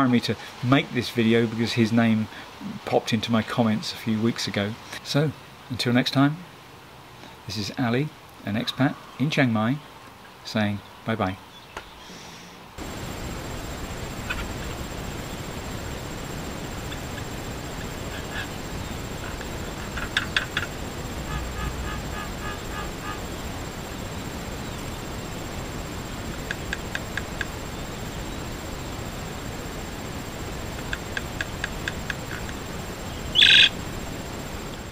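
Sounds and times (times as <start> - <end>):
steady background hiss: 0.0 - 34.9
mynas clicking calls: 16.6 - 23.3, 26.2 - 27.7, 30.6 - 33.8
bird chattering: 16.8 - 20.8, 30.8 - 32.6, 33.2 - 33.8.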